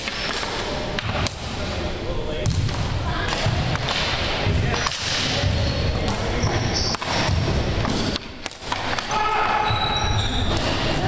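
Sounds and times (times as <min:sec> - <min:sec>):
short high squeaks: 0:09.5 - 0:10.6.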